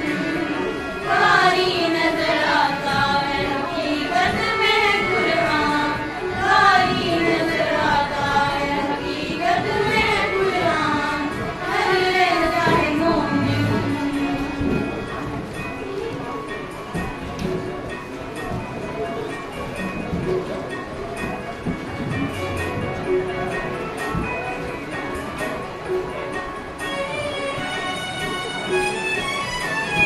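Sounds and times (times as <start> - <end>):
group of girls singing: 0.0 - 15.0.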